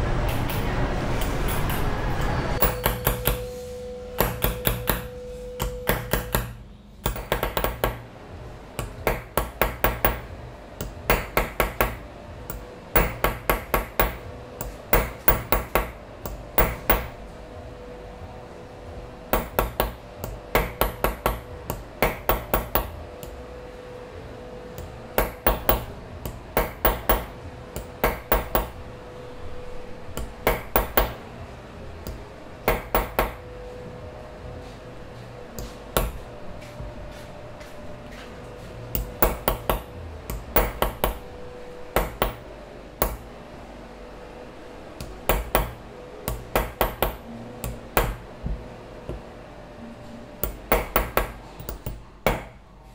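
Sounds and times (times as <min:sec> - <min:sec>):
faint steady hum: 0:00.0 - 0:52.9
hammer tapping metal punch: 0:00.3 - 0:08.1, 0:08.7 - 0:17.2, 0:19.2 - 0:23.4, 0:24.7 - 0:28.9, 0:30.1 - 0:31.2, 0:32.0 - 0:33.5, 0:35.6 - 0:36.3, 0:38.9 - 0:43.3, 0:45.0 - 0:49.3, 0:50.4 - 0:52.6.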